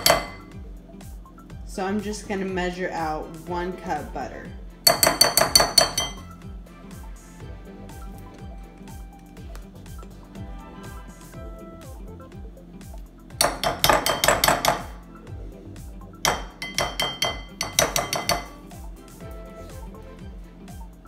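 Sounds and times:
metal utensil tapping glass bowl: 0:00.0 - 0:00.5, 0:04.9 - 0:06.3, 0:13.4 - 0:15.0, 0:16.2 - 0:18.6
background music with steady beat: 0:00.0 - 0:21.0.

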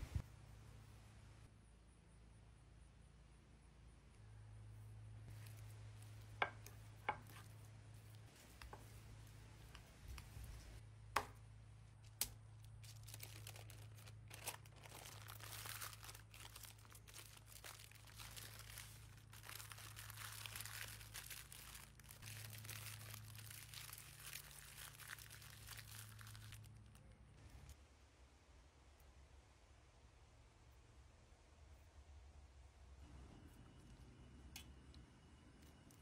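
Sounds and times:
faint low hum: 0:00.0 - 0:36.0
parchment paper crinkling: 0:11.9 - 0:27.8.

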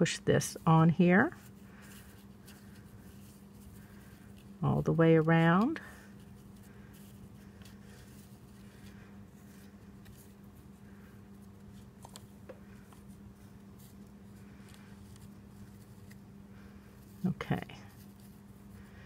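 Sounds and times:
low steady hum: 0:00.0 - 0:19.0
fingertips rustling and tapping: 0:01.3 - 0:16.3.

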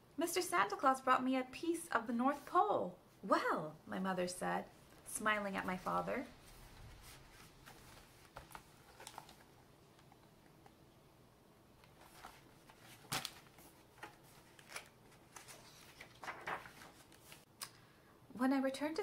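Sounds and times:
book pages turning: 0:05.7 - 0:10.3, 0:11.8 - 0:17.5.

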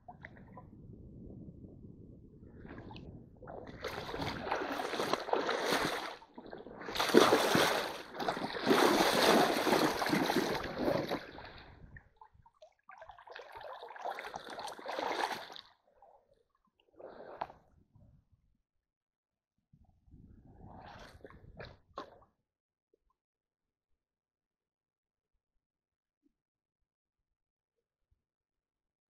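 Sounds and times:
water splashing and sloshing: 0:00.0 - 0:00.9, 0:02.4 - 0:17.6.

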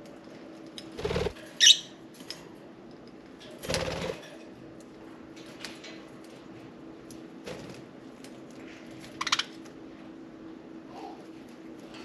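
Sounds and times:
sharp high bird chirp: 0:01.6 - 0:02.0.

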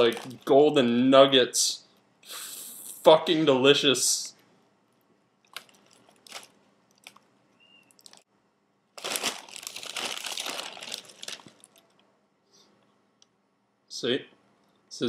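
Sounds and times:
cereal pieces rattling: 0:00.0 - 0:00.5, 0:09.0 - 0:11.8
plastic bag crinkling: 0:00.0 - 0:00.5, 0:05.5 - 0:07.3, 0:07.9 - 0:08.2, 0:09.0 - 0:12.0.

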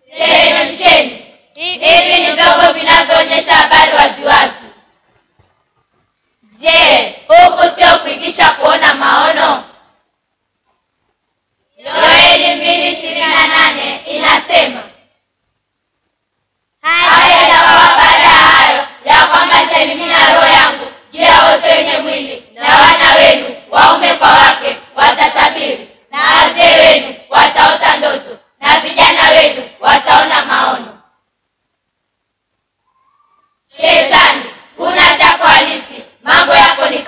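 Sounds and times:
children singing in unison: 0:00.0 - 0:04.8, 0:06.5 - 0:09.8, 0:11.8 - 0:15.0, 0:16.8 - 0:31.0, 0:33.7 - 0:37.0.

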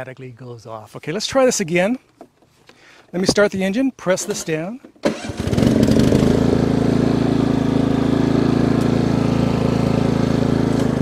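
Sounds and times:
riding mower engine starting: 0:04.2 - 0:11.0.

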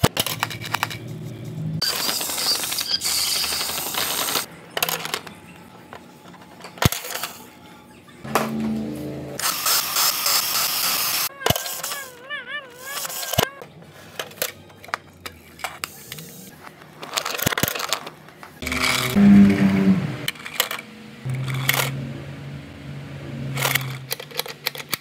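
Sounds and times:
plastic toys clicking and rattling: 0:00.0 - 0:01.2, 0:01.8 - 0:07.6, 0:09.4 - 0:19.0, 0:20.3 - 0:21.9, 0:23.6 - 0:25.0
loud pitched sound: 0:08.2 - 0:09.7, 0:18.6 - 0:20.3
warbling tone: 0:08.3 - 0:09.4, 0:18.6 - 0:20.3.

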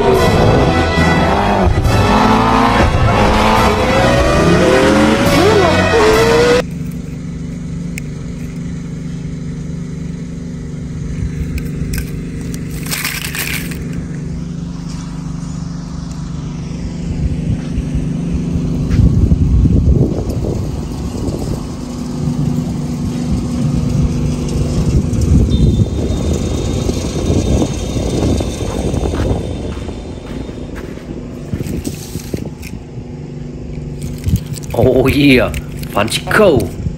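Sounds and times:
low machine hum: 0:00.0 - 0:36.9
footsteps on gravel: 0:11.4 - 0:15.4, 0:28.7 - 0:32.9.

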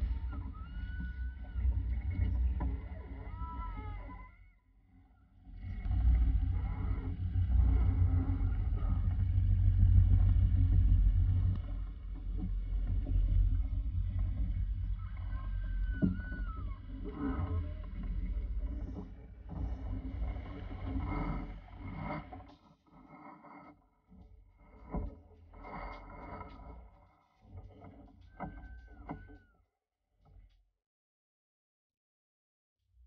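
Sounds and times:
water rushing along a hull: 0:00.0 - 0:04.4, 0:05.4 - 0:23.2, 0:24.1 - 0:29.4.

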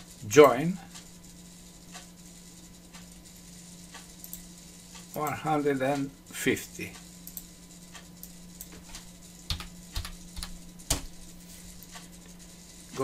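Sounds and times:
steady low hum: 0:00.0 - 0:13.0
keyboard keys clicking: 0:08.6 - 0:11.1.

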